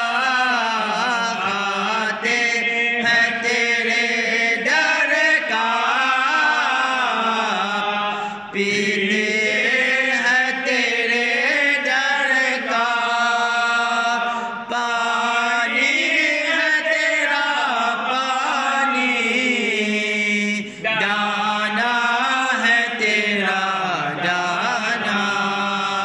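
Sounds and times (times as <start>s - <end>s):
man chanting unaccompanied: 0.0s - 26.0s.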